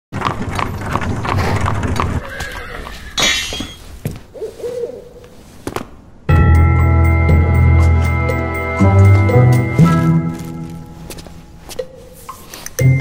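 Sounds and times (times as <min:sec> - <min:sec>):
wheels rumbling over cobblestones: 0:00.1 - 0:03.7
clattering hooves: 0:00.2 - 0:05.4
horse whinnying: 0:02.2 - 0:03.8
short wavering hoot: 0:04.4 - 0:05.2.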